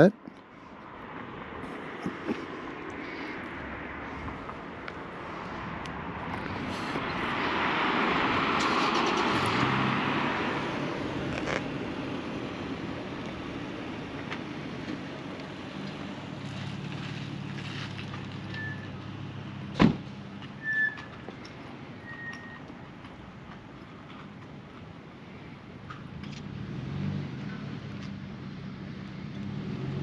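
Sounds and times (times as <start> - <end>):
vehicle passing by: 0.0 - 22.0, 26.1 - 30.0
car door shutting: 19.7 - 20.1.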